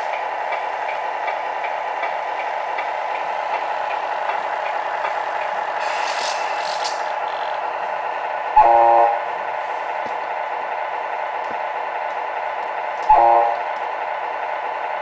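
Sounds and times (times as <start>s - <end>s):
toy truck mechanical hum: 1.6s - 7.8s
short hisses: 5.8s - 7.2s.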